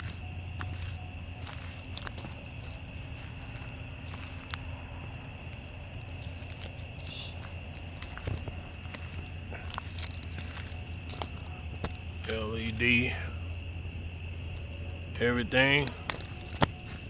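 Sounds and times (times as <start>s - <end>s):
crickets chirping: 0.0s - 17.0s
low steady hum: 0.0s - 17.0s.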